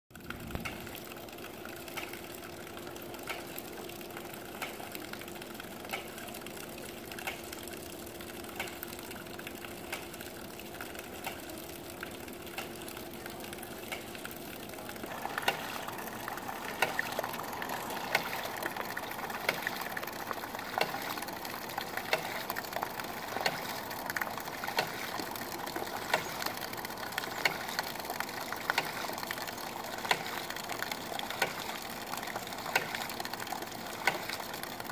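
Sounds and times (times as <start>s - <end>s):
water splashing: 0.3s - 34.9s
pump valve clacking: 15.0s - 34.9s.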